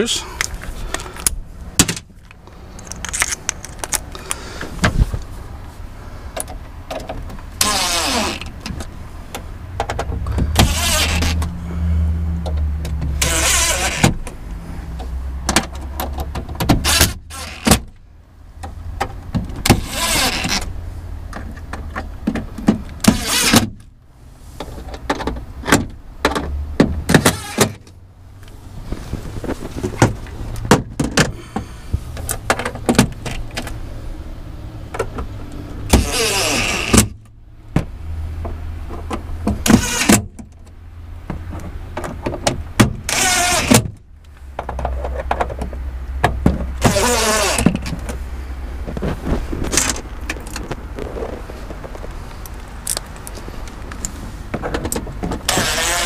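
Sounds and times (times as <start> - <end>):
cordless drill running: 55.5 - 56.0.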